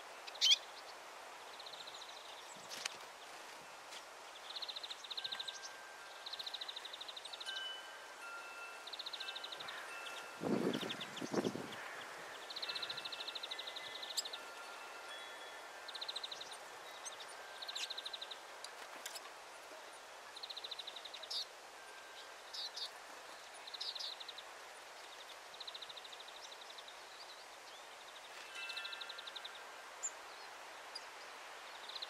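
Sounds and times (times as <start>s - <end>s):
songbird trills: 0.0s - 0.9s, 3.9s - 32.0s.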